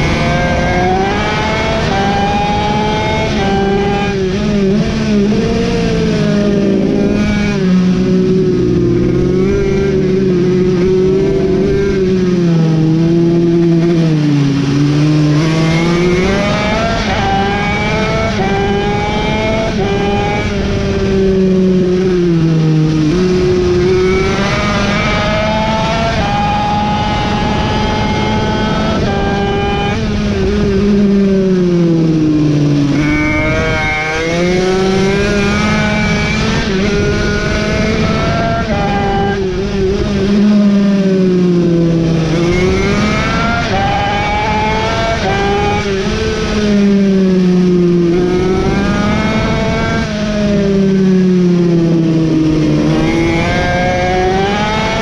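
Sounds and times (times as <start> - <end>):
mini bike engine revving: 23.3 - 47.0, 48.0 - 55.0.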